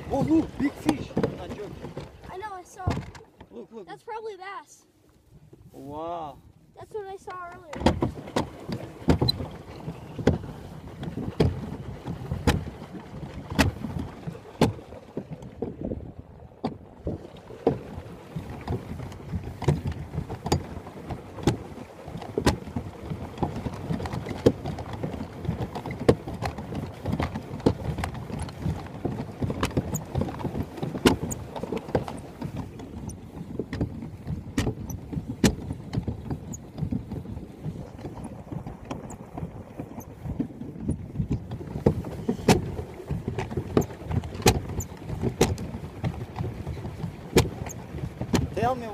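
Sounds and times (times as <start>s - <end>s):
water churning under hull: 0.0s - 48.9s
sharp knocks and clunks: 0.1s - 3.5s, 7.4s - 9.6s, 10.2s - 10.4s, 33.6s - 37.0s, 41.3s - 46.2s.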